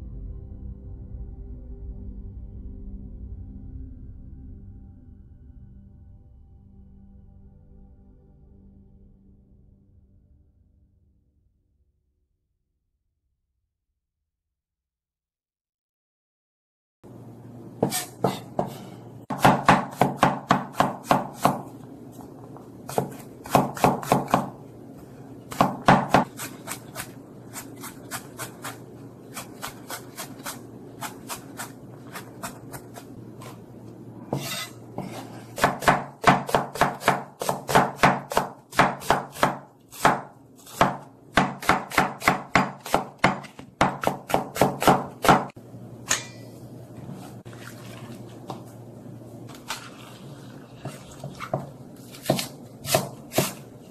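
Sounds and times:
knife chopping on wooden board: 17.8 - 21.7, 22.9 - 24.5, 25.5 - 33.6, 34.3 - 45.5, 51.3 - 53.7.

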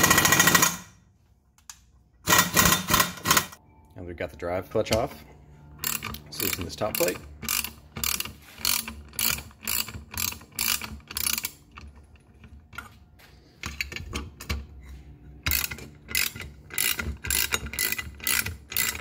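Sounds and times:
socket ratchet clicking: 5.8 - 12.0, 15.4 - 19.0.

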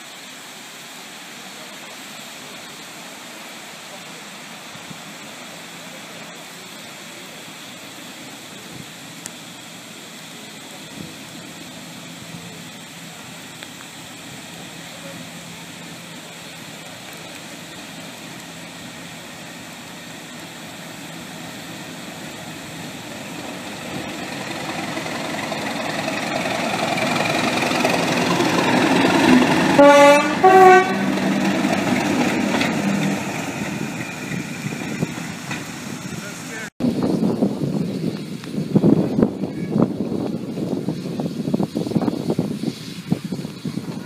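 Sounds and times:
diesel locomotive engine passing: 0.8 - 44.0
two-tone train horn blasts: 29.7 - 31.5.

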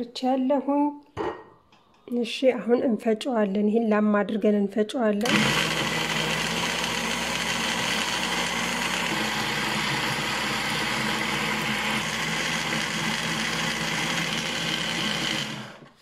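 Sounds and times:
blender running: 5.2 - 16.0.

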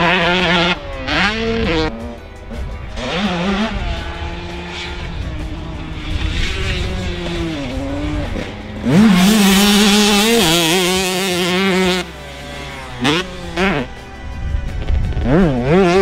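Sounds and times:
motocross engine revving: 0.0 - 16.0.

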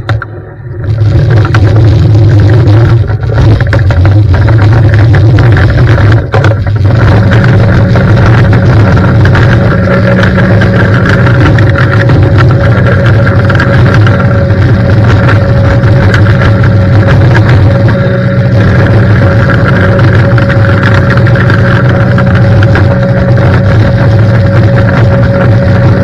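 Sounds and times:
pressure washer drone: 0.0 - 26.0.

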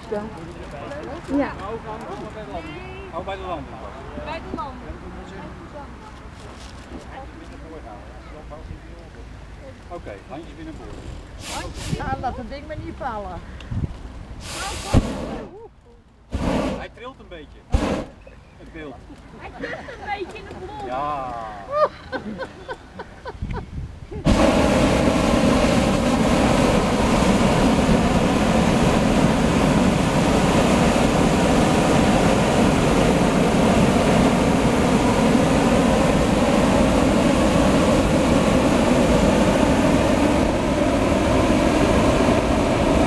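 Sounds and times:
propane burner roaring: 10.1 - 12.4, 14.2 - 15.6, 16.3 - 16.9, 17.7 - 18.2, 24.2 - 43.0.

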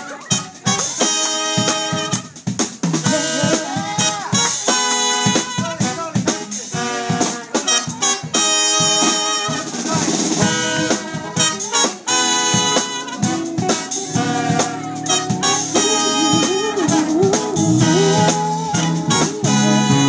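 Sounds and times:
drum kit hits: 0.0 - 20.0
trombone and saxophone notes: 0.0 - 20.0
electric bass guitar: 10.4 - 20.0.

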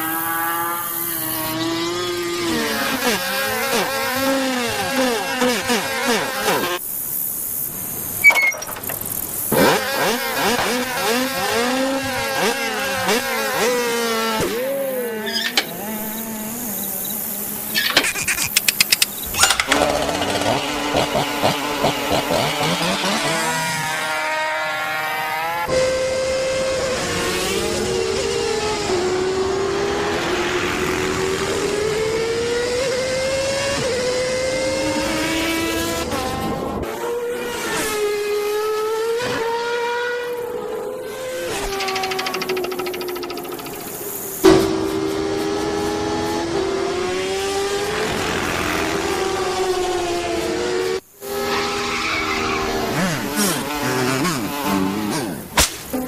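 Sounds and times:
cartoon insect wing buzzing: 2.6 - 23.2, 41.4 - 44.5
fast rattle of clicks: 8.5 - 9.5, 17.8 - 20.6, 41.7 - 44.4.

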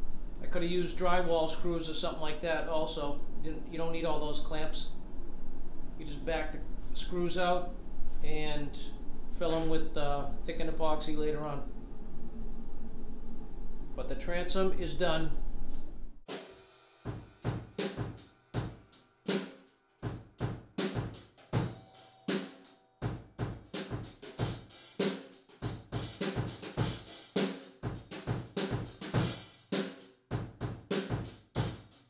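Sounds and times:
music with drum-kit beat: 16.3 - 32.0.

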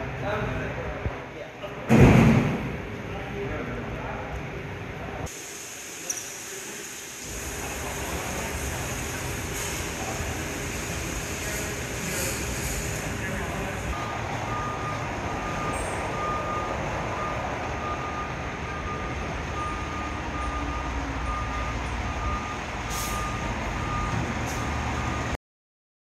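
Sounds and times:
air hisses: 5.3 - 14.0
diesel engine running: 7.2 - 25.4
reversing alarm beeping: 13.9 - 25.4.

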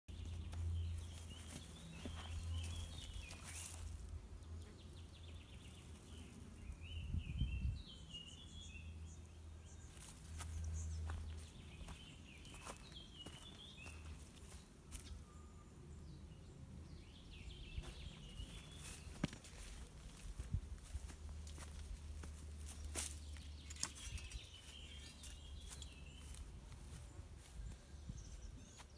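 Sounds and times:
birds chirping: 0.1 - 28.9
slow footsteps: 0.2 - 4.1, 9.9 - 15.2, 17.8 - 28.9.

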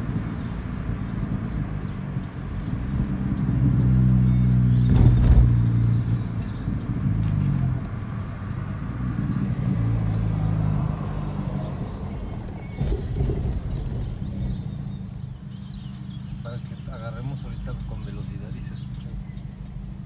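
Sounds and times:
car exhaust drone: 0.0 - 20.0
song on car stereo: 0.0 - 20.0
loud low thump: 4.8 - 5.6.

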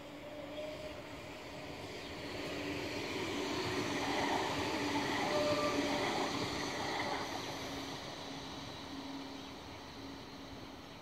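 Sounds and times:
tram passing on rails: 0.0 - 11.0.

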